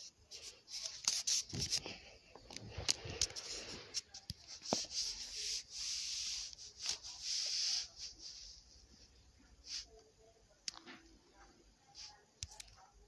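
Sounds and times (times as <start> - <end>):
rubbing and rustling: 0.0 - 9.9.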